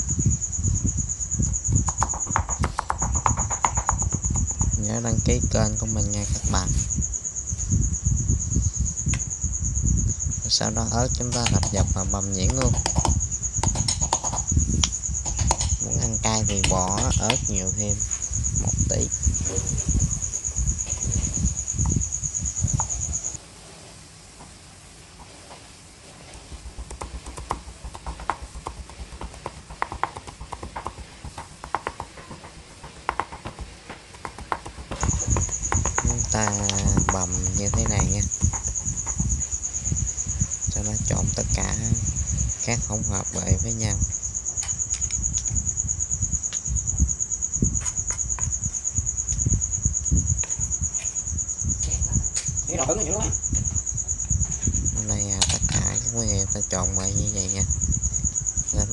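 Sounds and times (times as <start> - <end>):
cricket trilling: 0.0 - 58.9
knife chopping on wooden board: 1.9 - 4.8, 26.8 - 37.3.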